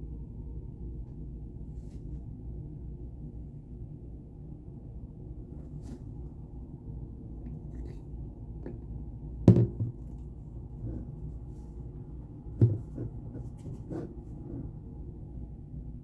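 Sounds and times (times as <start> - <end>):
low steady hum: 0.0 - 16.0
soft knocks: 9.5 - 10.0, 12.6 - 13.1.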